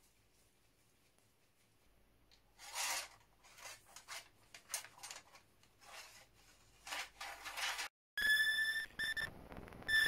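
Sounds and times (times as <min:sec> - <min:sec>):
metal rod scraping metal: 0:02.6 - 0:04.3.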